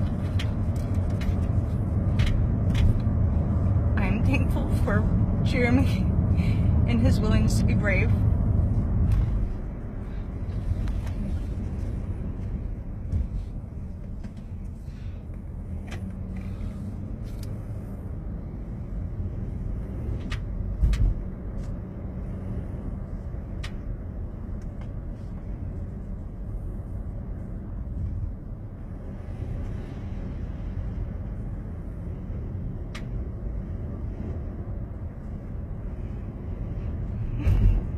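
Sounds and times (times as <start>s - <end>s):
car cabin rumble: 0.0s - 37.9s.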